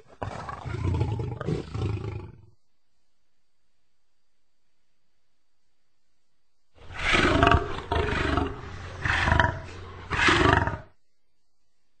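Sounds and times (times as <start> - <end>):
lion roaring: 0.0 - 2.4, 6.8 - 11.0.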